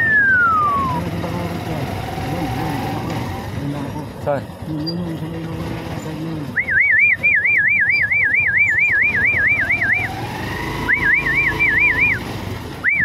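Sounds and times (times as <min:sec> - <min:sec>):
shrill warbling signal tone: 0:00.0 - 0:01.0, 0:06.6 - 0:12.2
car traffic: 0:00.0 - 0:13.0.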